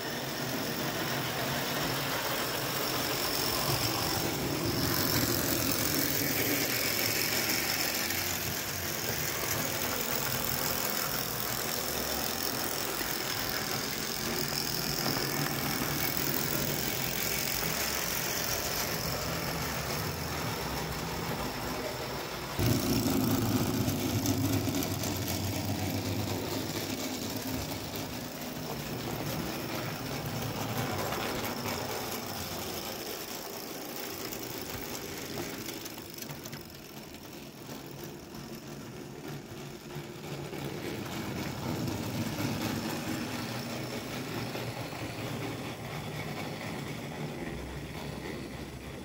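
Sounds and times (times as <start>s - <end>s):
metal wheels clattering on track: 0.2s - 49.0s
clockwork spring motor whirring: 22.6s - 28.1s.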